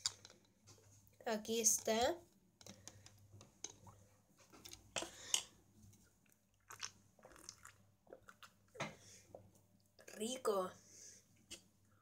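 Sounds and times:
person sipping a drink: 0:06.6 - 0:10.1.

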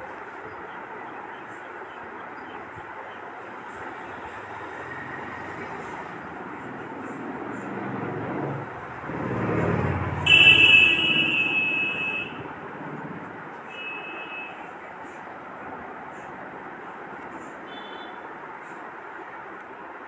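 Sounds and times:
loud horn: 0:10.2 - 0:12.4.

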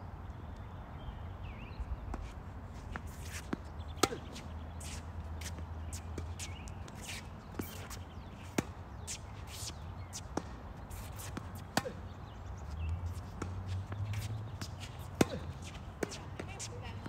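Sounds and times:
tennis ball bouncing: 0:03.0 - 0:17.0
tennis racket striking ball: 0:03.2 - 0:05.0, 0:07.0 - 0:12.1, 0:13.4 - 0:16.7.

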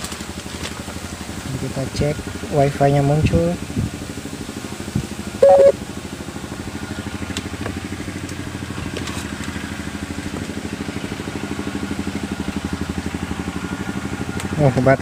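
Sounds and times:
small engine idling: 0:00.0 - 0:15.0
short loud tone: 0:05.4 - 0:05.8.

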